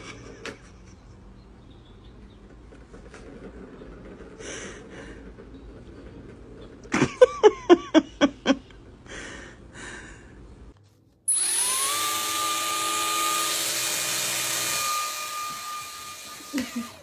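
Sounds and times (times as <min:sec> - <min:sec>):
rapid laughter: 0:06.9 - 0:08.8.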